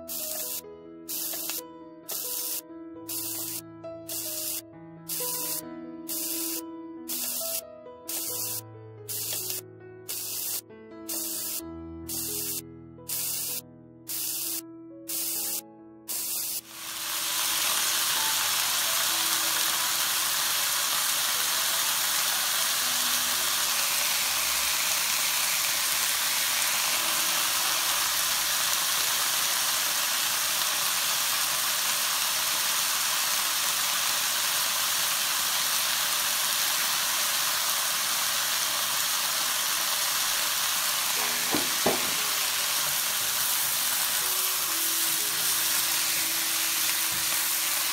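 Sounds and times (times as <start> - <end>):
vegetables sizzling in hot oil: 0.0 - 47.9
light knocks: 41.5 - 42.2.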